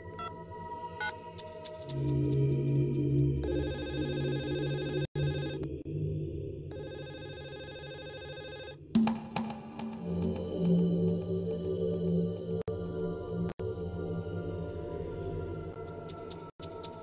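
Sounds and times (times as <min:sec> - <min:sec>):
background music drone: 0:00.0 - 0:07.2, 0:08.9 - 0:17.0
mobile phone ringing: 0:06.8 - 0:08.8.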